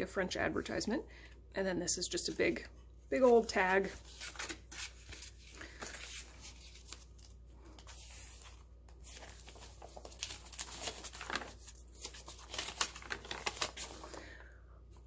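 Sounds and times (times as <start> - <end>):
paper rustling and scraping: 3.2 - 14.2
page turning: 3.3 - 14.2.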